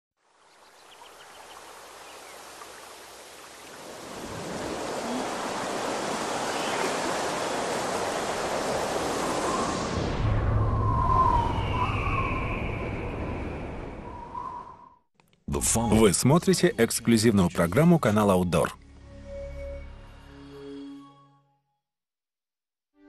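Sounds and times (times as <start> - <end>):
rushing water: 0.2 - 10.0.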